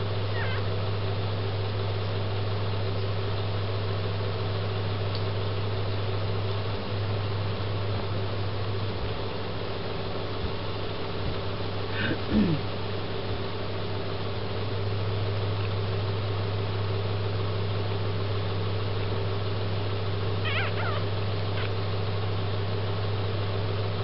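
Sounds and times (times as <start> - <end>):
steady low hum: 0.0 - 24.0
puppy squeaking: 0.3 - 0.6, 20.4 - 21.7.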